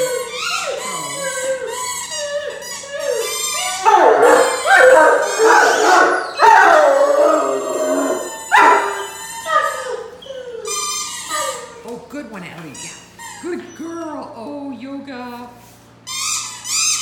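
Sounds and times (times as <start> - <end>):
dog howling: 0.0 - 11.9.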